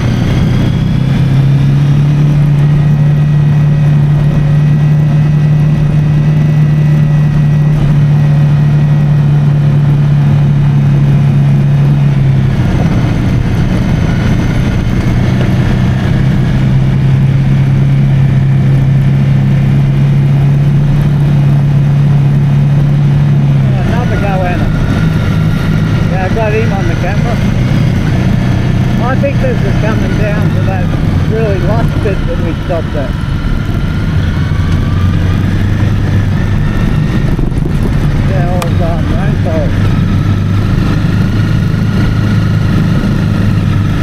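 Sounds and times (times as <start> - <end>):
motorcycle engine running: 0.0 - 44.0
wind and road noise: 0.0 - 44.0.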